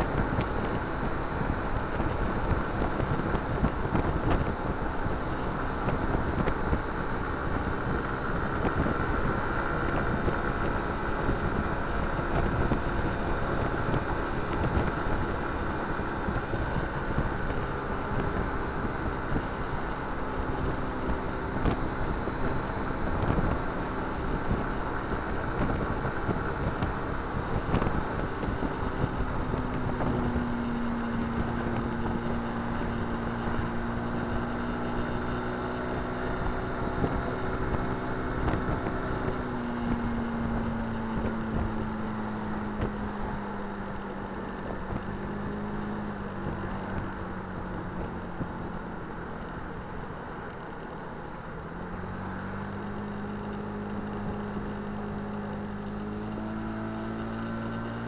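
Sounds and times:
wind noise: 0:00.0 - 0:50.9
road noise: 0:00.0 - 0:58.0
vehicle engine droning: 0:00.0 - 0:58.0.

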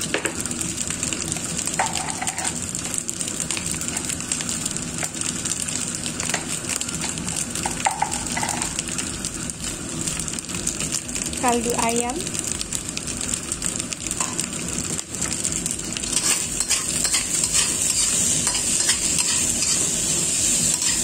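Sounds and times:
rice sizzling in wok: 0:00.0 - 0:21.0
metal spatula scraping wok: 0:01.9 - 0:02.6, 0:16.0 - 0:21.0.

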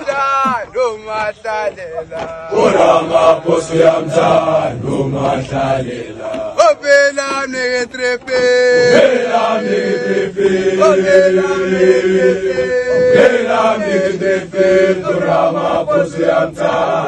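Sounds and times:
group of boys chanting: 0:02.4 - 0:06.6, 0:08.7 - 0:17.0.

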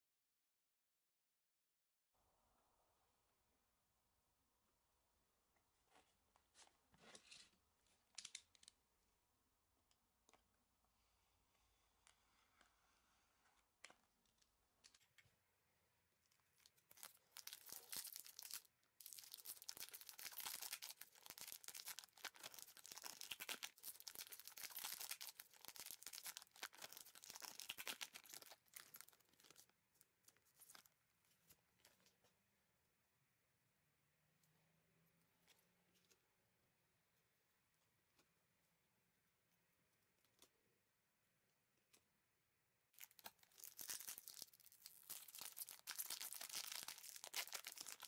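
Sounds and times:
foil pack tearing and crinkling: 0:43.0 - 0:48.0.

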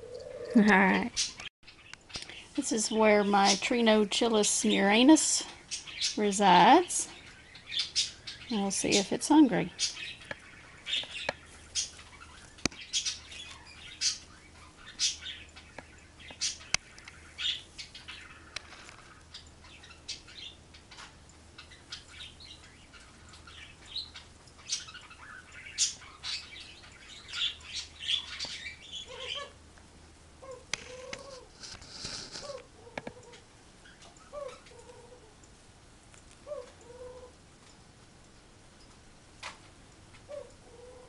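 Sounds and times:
bird chirping and squawking: 0:00.0 - 0:03.6, 0:05.6 - 0:09.0, 0:09.7 - 0:29.6, 0:30.4 - 0:35.4.

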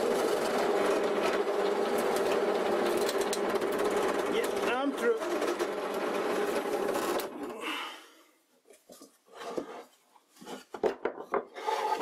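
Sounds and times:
drill press winding down: 0:00.0 - 0:07.5.

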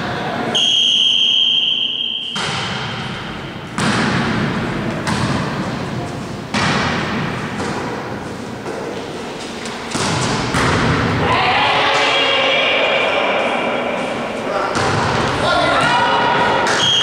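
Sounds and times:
referee's whistle blast: 0:00.5 - 0:02.6, 0:16.7 - 0:17.0
players' voices: 0:11.1 - 0:17.0.

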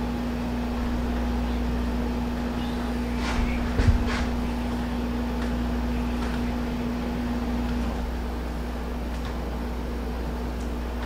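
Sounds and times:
humming tone: 0:00.0 - 0:11.0
machine humming: 0:00.0 - 0:11.0.

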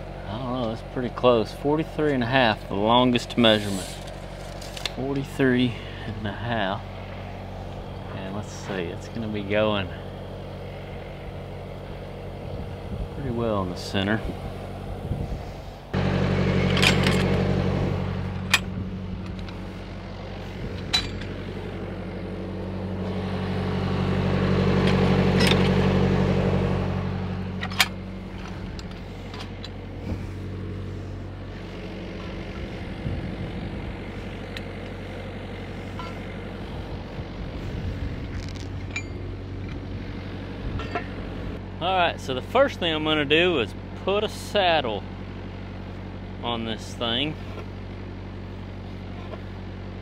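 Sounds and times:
welding machine engine running: 0:00.0 - 0:50.0
pipe clicks and clanks: 0:18.2 - 0:21.5, 0:27.5 - 0:30.1, 0:40.7 - 0:41.2.

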